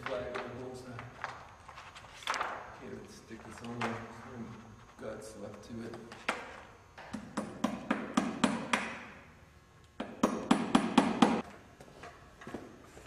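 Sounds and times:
hammer tapping on wood: 10.0 - 11.4.

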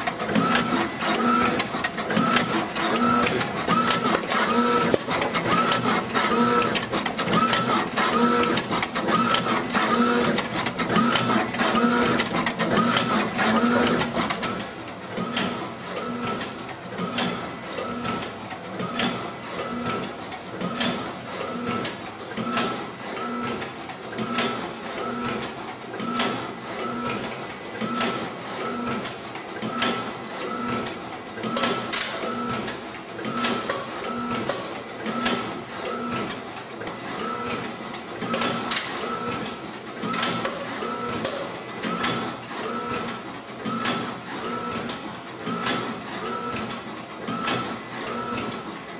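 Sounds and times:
machine whirring strokes: 0.0 - 16.4
machine clicks: 0.0 - 48.9.

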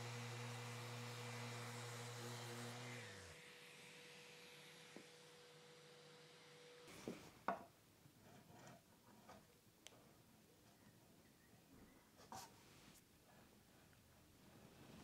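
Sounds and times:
wood chisel scraping wood: 8.2 - 9.5.

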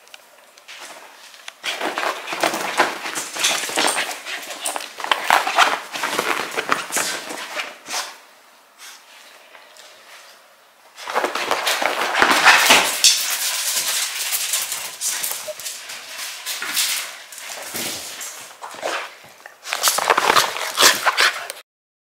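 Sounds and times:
dog rustling on fabric sofa: 0.7 - 8.2.

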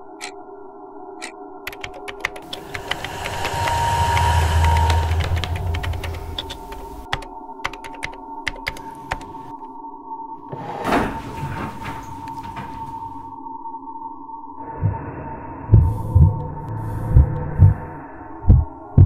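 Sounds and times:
laptop keyboard typing: 1.7 - 9.5
deep rumble: 2.4 - 7.2, 14.6 - 19.0
steady low drone: 2.4 - 7.3, 14.5 - 19.0.

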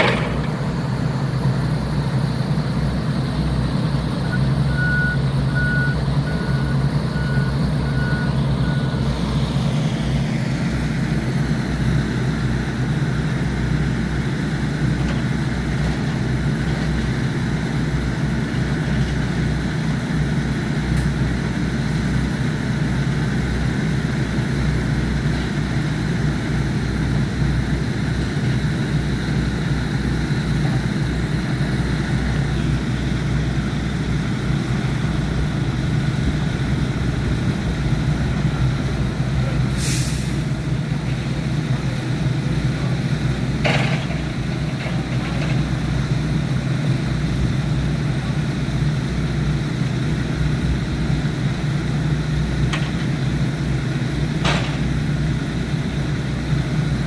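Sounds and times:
diesel engine running: 0.0 - 57.0
reversing alarm beeping: 4.2 - 9.1.

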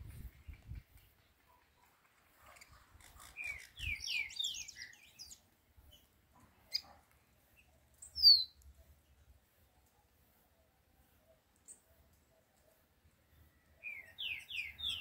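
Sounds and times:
songbird singing high notes: 3.4 - 5.4, 8.0 - 8.6, 13.8 - 15.0.

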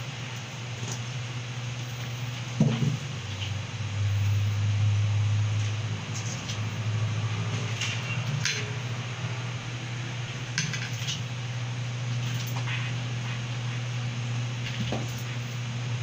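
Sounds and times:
steady low hum: 0.0 - 16.0
grooming tools clattering on table: 10.6 - 11.2.

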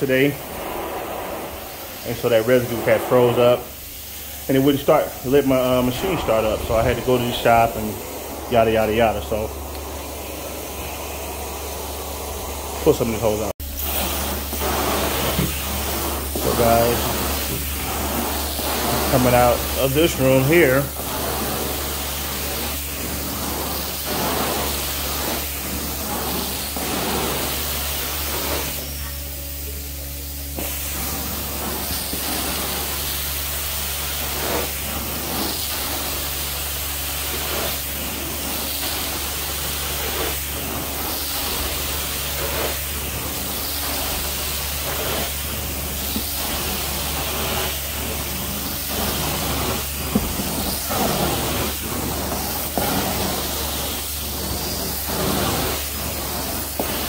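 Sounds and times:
wand hissing with suction: 0.0 - 12.8, 30.5 - 57.0
cleaning machine humming: 0.0 - 57.0.

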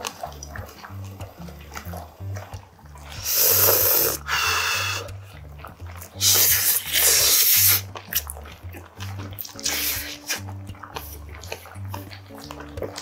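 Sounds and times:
background music with bass line: 0.0 - 13.0
man chewing food: 0.0 - 13.0.

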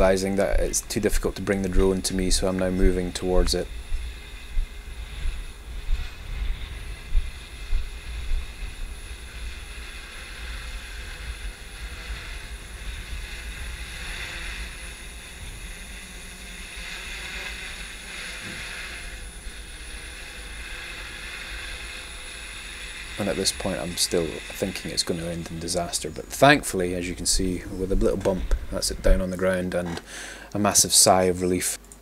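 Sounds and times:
wind buffeting microphone: 0.0 - 16.0, 24.8 - 29.4
drone propellers whirring: 0.0 - 30.3.

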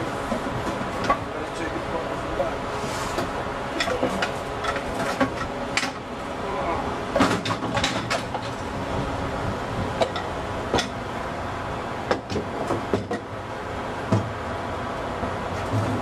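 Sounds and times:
workshop noise: 0.0 - 11.2, 11.9 - 16.0
metal parts clanking and knocking: 7.2 - 8.5.

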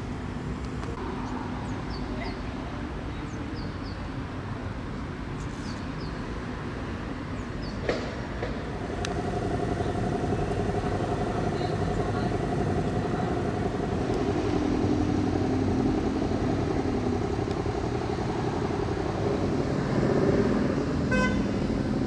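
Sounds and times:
vehicle engine rumbling: 0.0 - 22.0
two-pitch steady hum: 8.6 - 22.0.

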